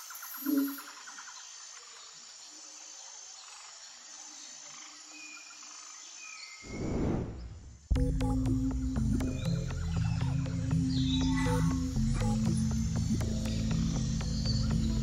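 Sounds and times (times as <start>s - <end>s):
insect hiss: 0.0s - 15.0s
music with drone and pulsing beat: 7.9s - 15.0s.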